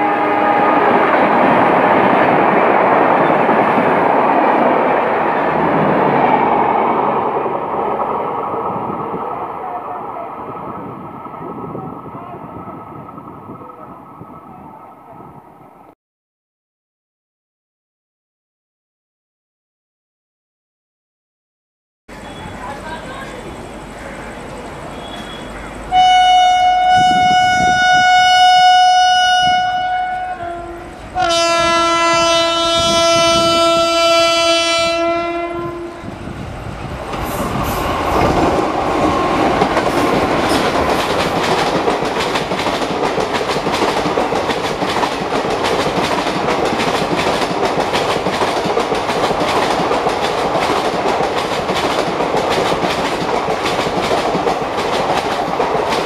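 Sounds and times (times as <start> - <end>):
locomotive horn blasts: 0.0 - 0.9, 25.0 - 36.1
passenger coaches rumbling past: 0.0 - 15.8, 22.1 - 56.0
train wheels clattering over rails: 36.8 - 56.0.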